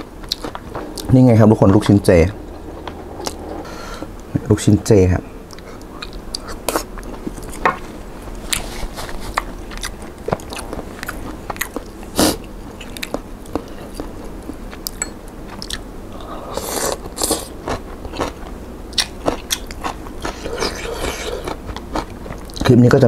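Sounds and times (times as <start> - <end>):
person biting and chewing: 0.2 - 1.1, 8.4 - 22.7
noodles slurping: 20.2 - 21.7.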